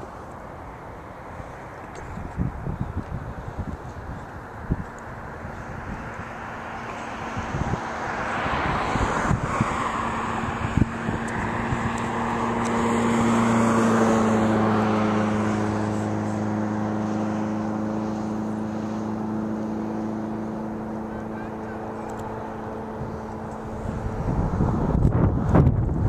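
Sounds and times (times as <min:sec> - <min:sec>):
jet airliner engine roar: 0:00.0 - 0:26.0
wind thumps on microphone: 0:02.1 - 0:06.2, 0:07.2 - 0:12.8, 0:23.0 - 0:26.0.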